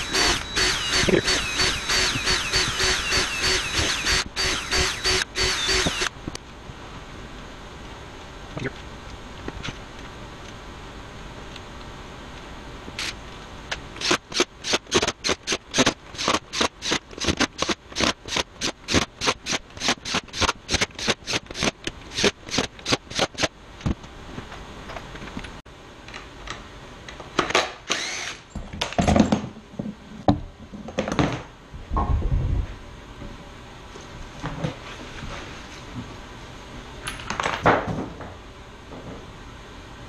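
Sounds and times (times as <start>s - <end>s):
cordless drill short bursts: 0.0s - 6.1s, 27.9s - 28.4s.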